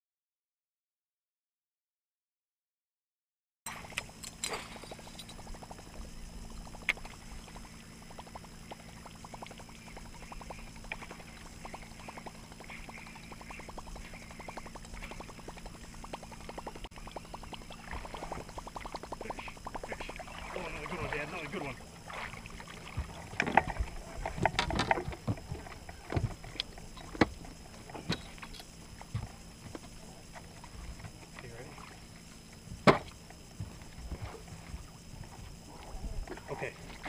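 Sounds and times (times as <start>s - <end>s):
low steady hum: 3.7s - 37.0s
water lapping at boat: 3.7s - 37.0s
fishing reel ticking: 3.8s - 25.0s.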